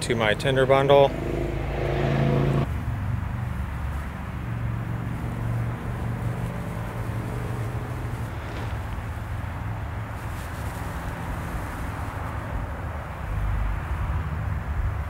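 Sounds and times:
low steady rumble: 0:00.0 - 0:11.1.

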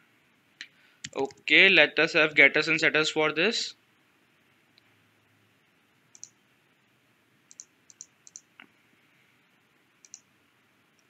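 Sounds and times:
computer mouse clicks: 0:06.1 - 0:06.4, 0:07.5 - 0:08.7, 0:10.0 - 0:10.3.

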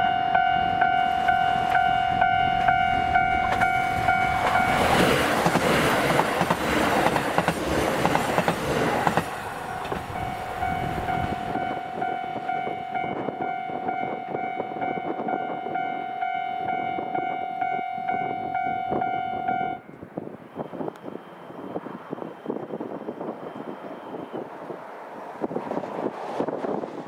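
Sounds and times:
pulsing ringing tone: 0:00.0 - 0:04.8, 0:10.1 - 0:19.8
rail joint clicks: 0:00.0 - 0:24.9
diesel train passing: 0:00.0 - 0:27.0.

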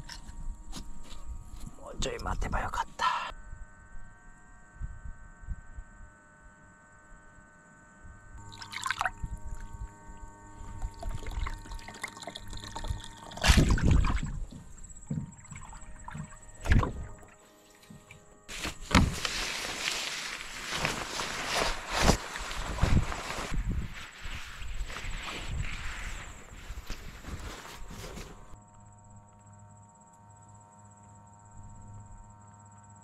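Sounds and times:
water splashing in bath: 0:08.5 - 0:09.2, 0:10.9 - 0:17.2
water lapping: 0:10.8 - 0:17.4.

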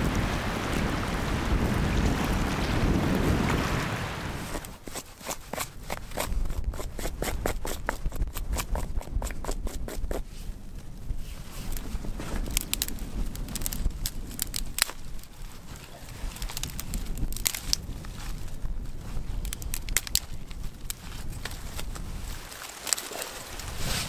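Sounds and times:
wind rumble on microphone: 0:00.0 - 0:24.0
twigs crackling under a knife: 0:10.8 - 0:24.0.

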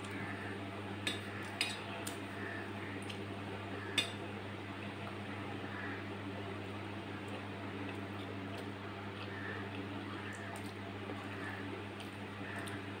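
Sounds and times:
low electrical hum: 0:00.0 - 0:13.0
soft chewing: 0:06.6 - 0:12.9.

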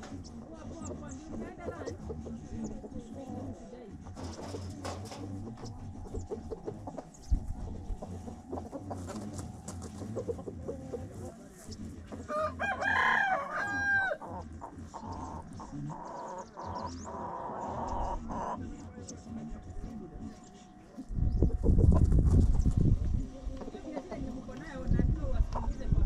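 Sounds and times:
chickens clucking: 0:00.0 - 0:26.0
rooster crowing: 0:12.3 - 0:14.2.

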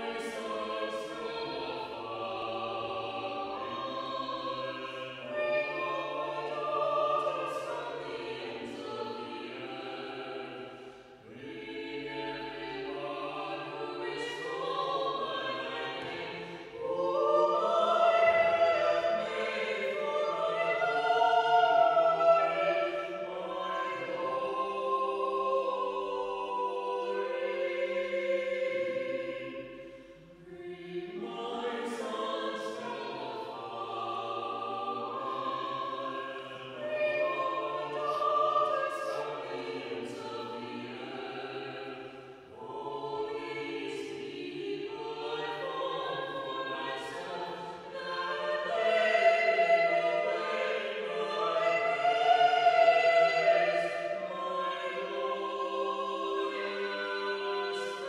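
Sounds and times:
vocal trio singing a hymn: 0:00.0 - 0:58.0.

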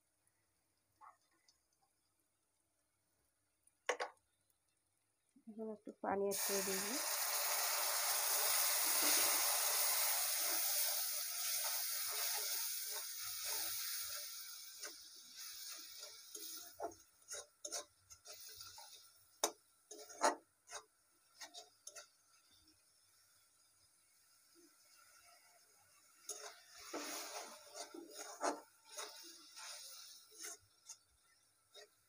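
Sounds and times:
oil sizzling in a wok: 0:06.2 - 0:32.0
metal spatula scraping a wok: 0:08.4 - 0:22.6, 0:24.9 - 0:32.0.

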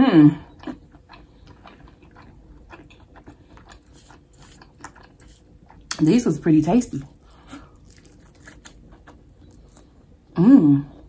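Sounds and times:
soft chewing: 0:00.4 - 0:11.0.

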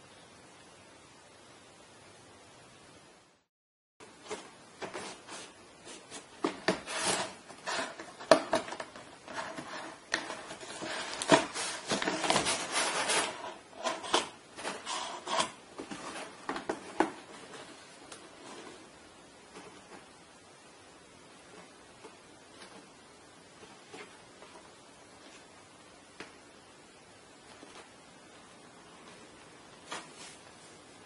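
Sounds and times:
cat scratching in cardboard box: 0:04.3 - 0:17.2.

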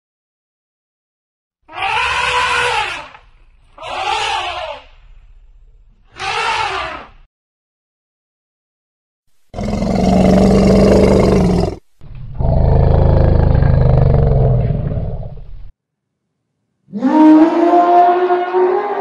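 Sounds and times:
elephant calling: 0:01.7 - 0:03.2, 0:03.8 - 0:04.9, 0:06.1 - 0:07.1.

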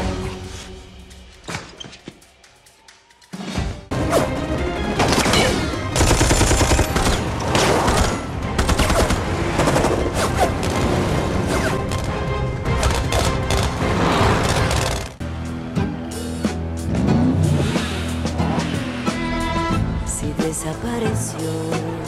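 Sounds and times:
film music score: 0:00.0 - 0:22.0
gunfire bursts: 0:06.0 - 0:10.2.

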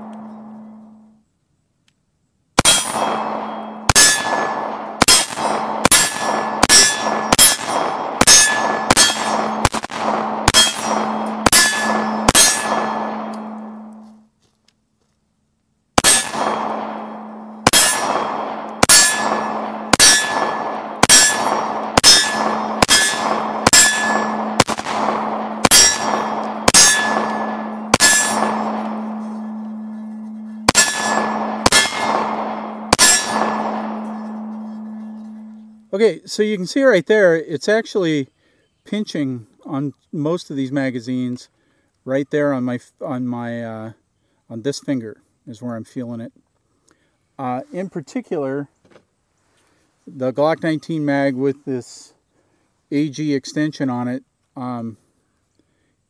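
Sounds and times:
pistol shots: 0:02.6 - 0:14.0, 0:16.0 - 0:34.9.

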